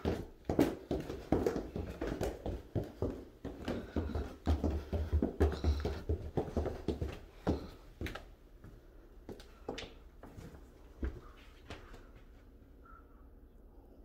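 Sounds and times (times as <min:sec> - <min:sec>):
light steps and knocks on floor: 0:00.0 - 0:11.9
footsteps down a staircase: 0:00.0 - 0:12.5.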